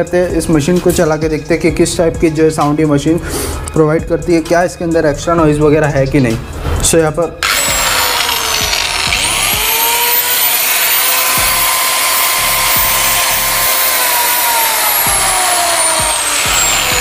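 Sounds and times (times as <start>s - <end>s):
marble cutter motor whining: 7.4s - 17.0s.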